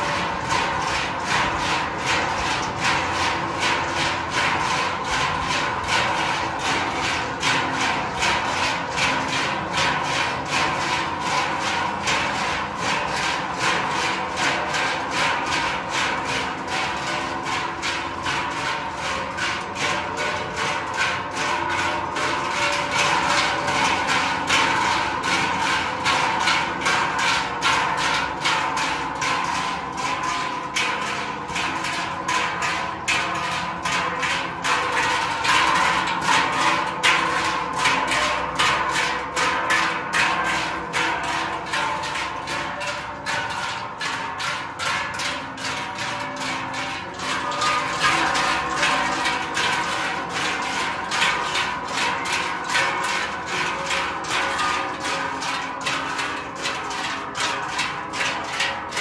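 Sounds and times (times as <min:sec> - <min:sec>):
cowbells clanging rhythmically: 0:29.9 - 0:59.0.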